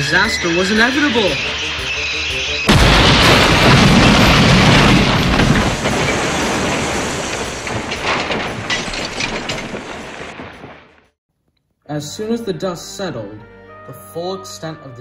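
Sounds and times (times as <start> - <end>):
long noisy crash: 2.6 - 10.7
loud impact: 2.6 - 11.0
sharp clatters: 3.2 - 11.1.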